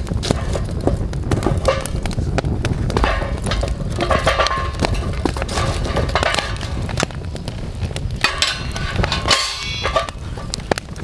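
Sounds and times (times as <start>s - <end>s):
wood fire crackling and popping: 0.0s - 11.0s
metal plate clanging on pit: 1.5s - 2.0s, 3.0s - 6.8s, 8.2s - 10.2s.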